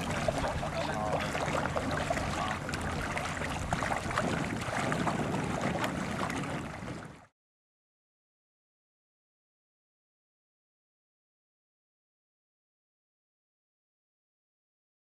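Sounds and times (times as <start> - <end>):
water lapping around boat: 0.0 - 7.3
wind noise on microphone: 0.0 - 7.3.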